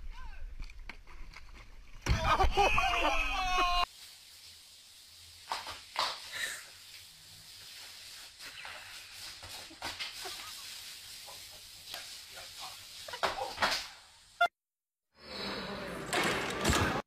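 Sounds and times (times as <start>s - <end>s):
hose spraying water on concrete: 2.9s - 14.4s.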